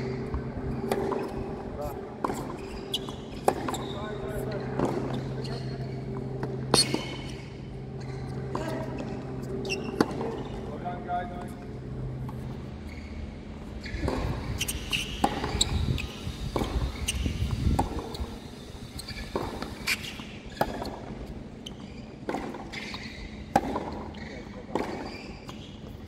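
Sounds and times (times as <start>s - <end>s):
rackets striking tennis ball: 0.0s - 7.4s, 13.9s - 18.4s, 23.5s - 24.1s
tennis ball bouncing: 0.1s - 3.9s, 8.0s - 10.6s, 14.0s - 15.7s, 16.3s - 18.4s, 22.2s - 24.1s.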